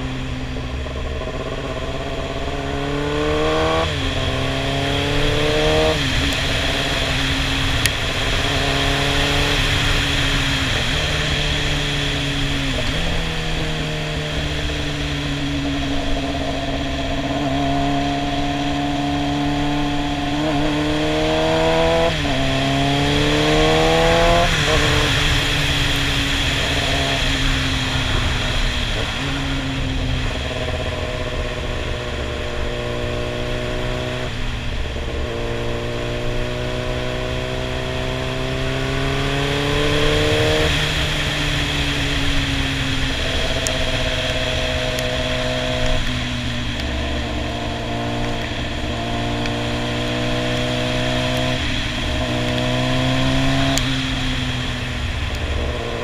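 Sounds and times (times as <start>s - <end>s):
motorcycle engine running: 0.0s - 56.0s
wind and road noise: 0.0s - 56.0s.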